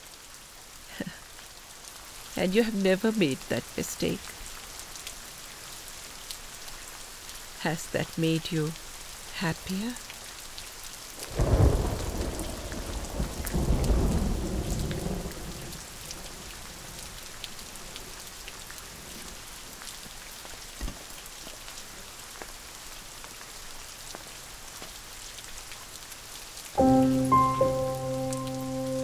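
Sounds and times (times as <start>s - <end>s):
steady rain: 0.0s - 29.0s
thunder rumbling: 11.4s - 15.7s.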